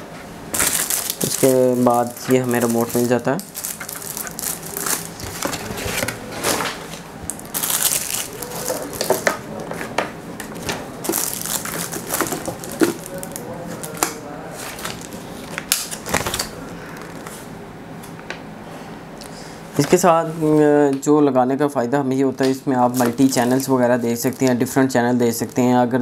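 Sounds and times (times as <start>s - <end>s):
plastic packaging crinkling: 0.5s - 9.6s, 10.4s - 17.4s, 22.4s - 25.8s.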